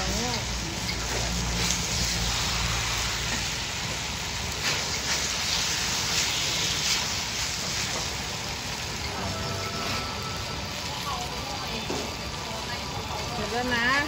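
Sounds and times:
spatula scraping wok: 0.0s - 11.0s
noodles sizzling in wok: 0.0s - 14.0s.

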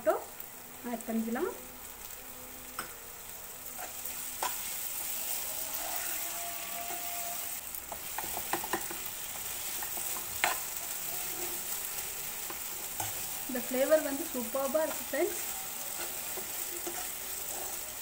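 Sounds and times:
vegetables sizzling in oil: 0.0s - 18.0s
metal spoon scraping and tapping pan: 3.8s - 5.1s, 7.9s - 11.6s, 14.8s - 17.8s.

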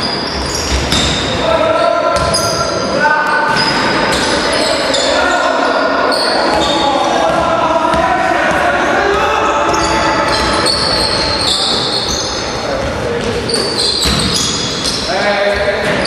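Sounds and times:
sneaker squeaks: 0.0s - 8.6s, 9.2s - 16.0s
players calling out: 0.4s - 16.0s
basketball dribbling: 6.5s - 13.2s.

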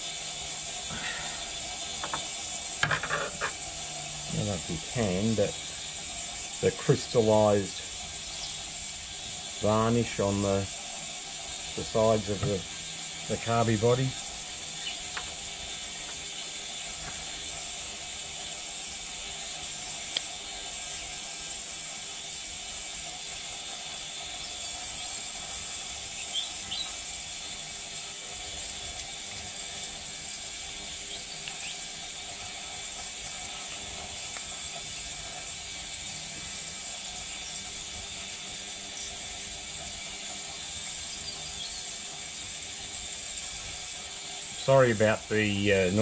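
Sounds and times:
parts cleaner hum and whine: 0.0s - 10.9s, 11.5s - 17.3s.

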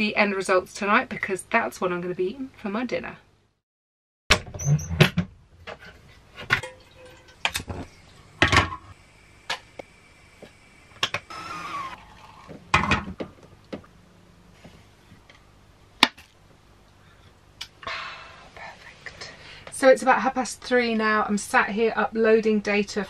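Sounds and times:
kitchen items knocking and clattering: 4.3s - 8.9s, 12.6s - 13.5s.

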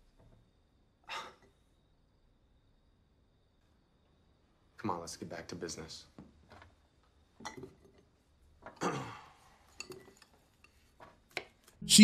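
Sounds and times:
glass jars and utensils clinking: 9.7s - 10.8s.

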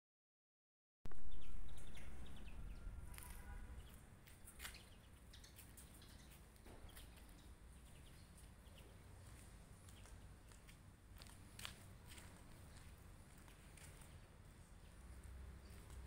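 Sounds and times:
faint bird chirps: 1.1s - 9.0s.

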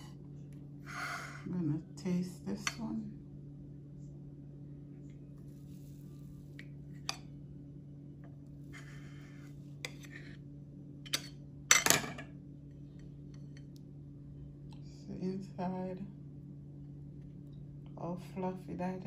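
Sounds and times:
steady low hum: 0.0s - 19.0s
dishes clattering: 11.1s - 12.3s.

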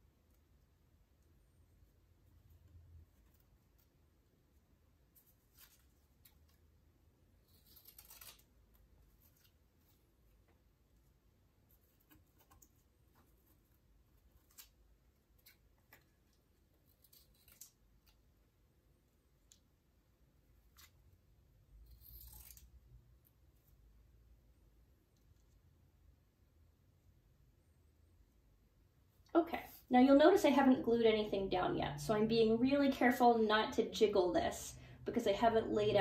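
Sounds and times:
paper rustling: 5.1s - 6.7s, 7.4s - 10.6s
scissors snipping paper: 7.4s - 10.0s, 11.7s - 18.3s, 21.8s - 22.8s.

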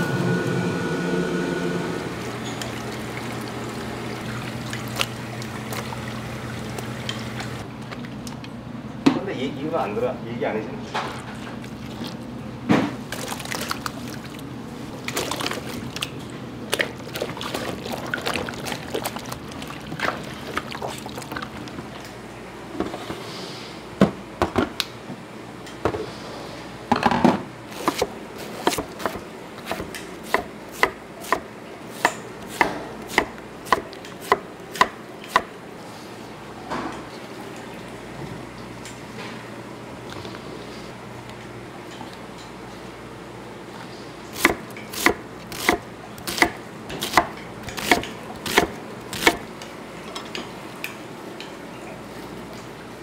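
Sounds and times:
wet splashing and pouring: 13.1s - 21.7s.

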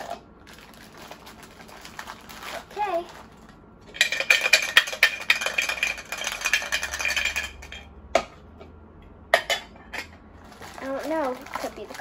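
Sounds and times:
metal cans rattling and clinking: 3.9s - 7.9s, 10.6s - 12.0s.

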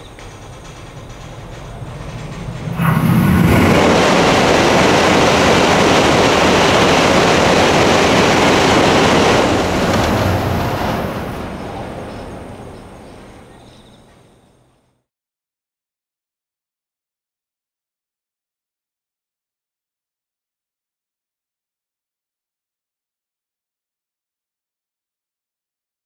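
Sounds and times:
high-speed train rushing rumble: 0.0s - 14.8s.

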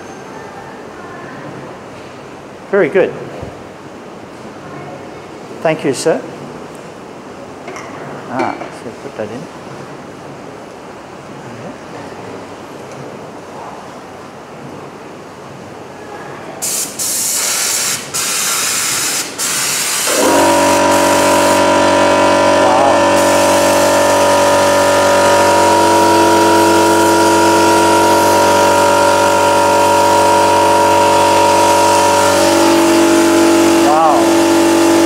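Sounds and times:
nozzle spraying with loud hiss: 16.6s - 35.0s
motor humming: 20.1s - 35.0s.

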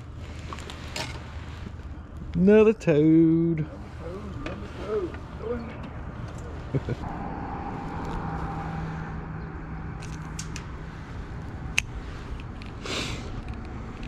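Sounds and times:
steady low hum: 3.5s - 14.0s.

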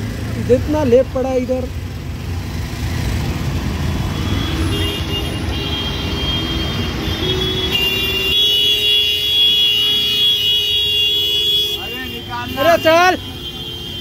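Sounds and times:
vehicle horns: 4.0s - 14.0s.

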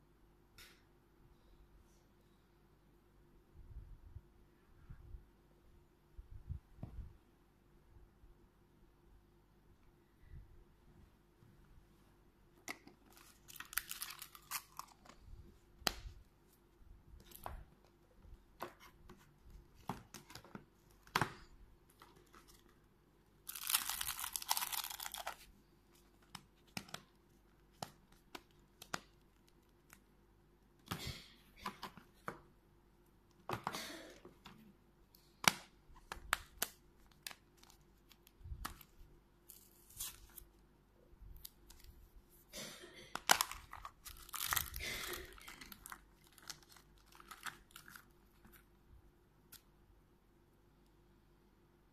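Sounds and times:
packaging crinkling and tearing: 13.0s - 15.2s, 23.4s - 25.5s, 36.3s - 40.5s, 43.2s - 48.6s.

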